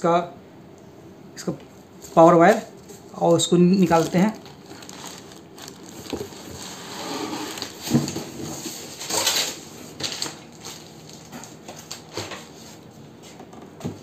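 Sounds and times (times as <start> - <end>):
plastic wrapping crinkling: 2.2 - 12.6.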